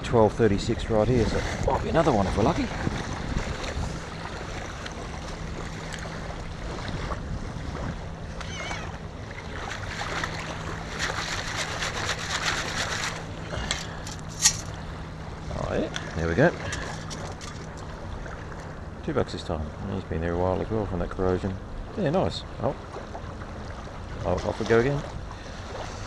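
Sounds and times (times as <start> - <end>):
small waves washing over sand: 0.9 - 14.9, 22.7 - 26.0
water swishing through scoop: 9.4 - 14.8
sand scoop digging: 10.9 - 14.7.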